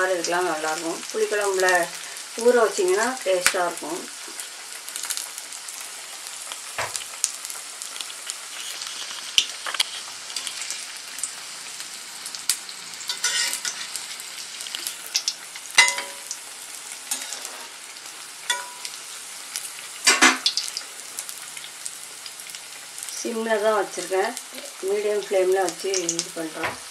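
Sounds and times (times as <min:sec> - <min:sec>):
food deep-frying in oil: 0:00.0 - 0:26.9
metal spoon clinking on pan: 0:13.1 - 0:13.8, 0:14.9 - 0:16.4, 0:18.5 - 0:19.0.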